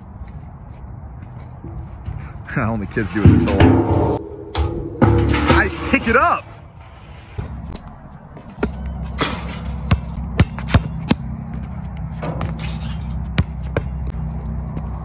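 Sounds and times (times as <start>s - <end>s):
steady low hum: 1.6s - 6.2s
basketball bouncing on concrete: 9.9s - 11.6s, 13.2s - 14.2s.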